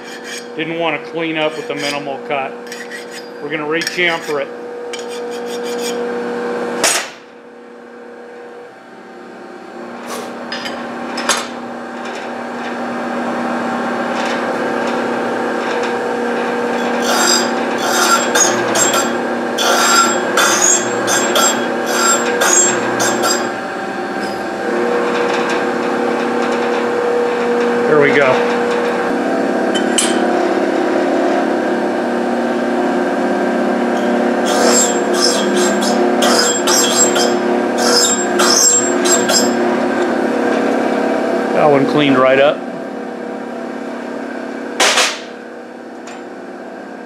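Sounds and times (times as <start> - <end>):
metal scraping grinding cut: 0.0 - 6.2, 14.4 - 30.5, 33.6 - 40.7
cutter motor hum: 14.6 - 41.5.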